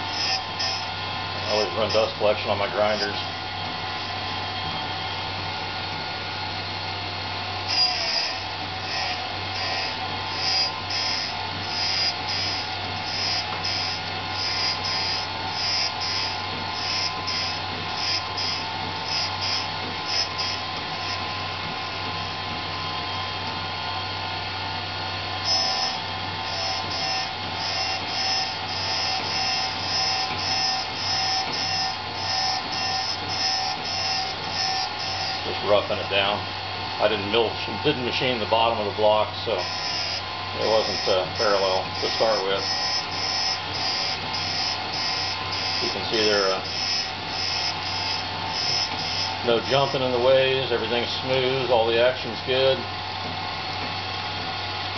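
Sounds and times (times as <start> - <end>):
surface grinder humming: 0.0 - 4.8, 7.7 - 23.2, 25.1 - 36.4, 38.6 - 50.2
grinding wheel hissing on steel: 0.0 - 6.3, 7.4 - 51.9.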